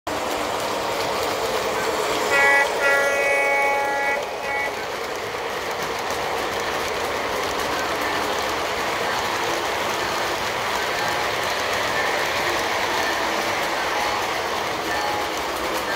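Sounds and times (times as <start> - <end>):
train wheels rumbling on rail: 0.1 - 15.9
train horn: 2.2 - 5.0.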